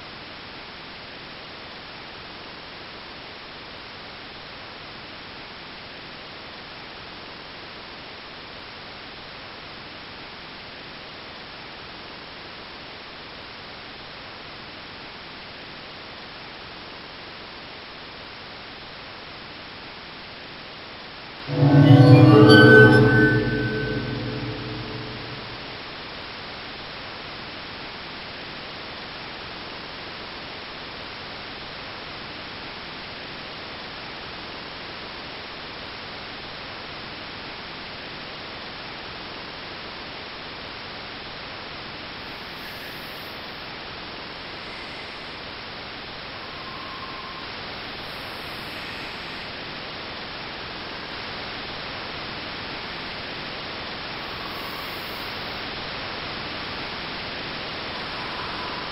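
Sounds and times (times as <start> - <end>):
static hiss: 27.6 - 58.9.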